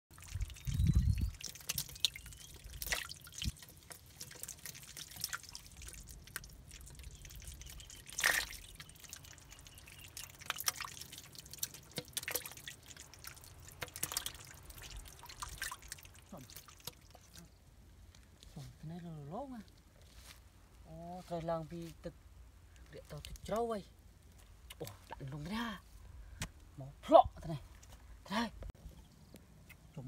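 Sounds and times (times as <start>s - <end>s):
fish splashing in water: 0.1s - 17.4s.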